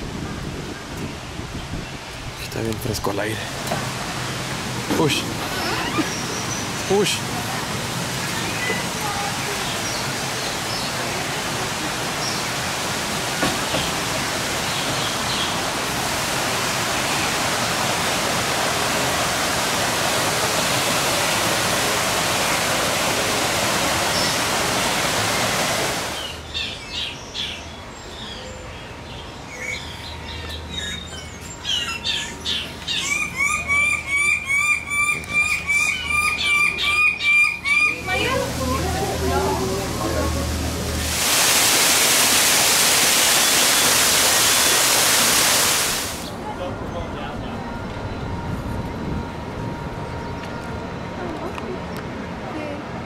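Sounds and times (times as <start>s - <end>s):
birds chirping: 4.9s - 12.8s, 13.6s - 18.1s, 23.6s - 41.2s
steady rushing noise: 38.0s - 51.1s.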